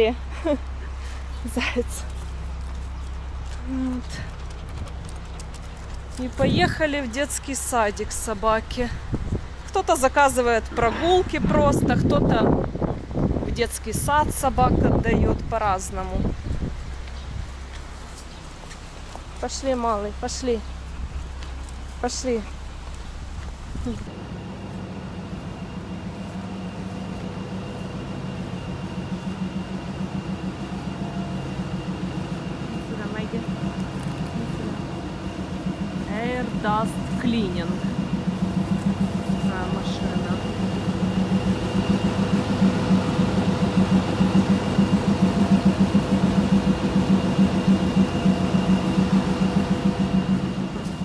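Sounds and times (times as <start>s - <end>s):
high whine: 23.8s - 51.0s
duct cleaning machine drone: 24.1s - 51.0s.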